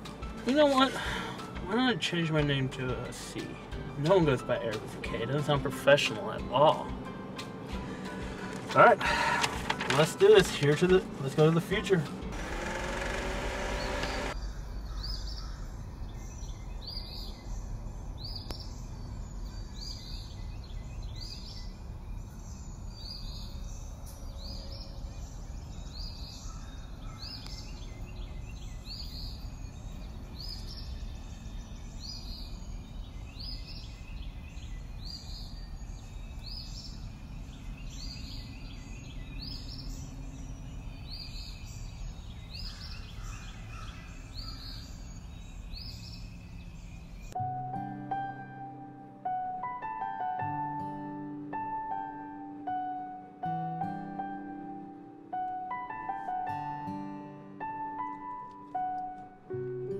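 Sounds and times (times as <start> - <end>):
bird chirping: 12.5 - 47.5.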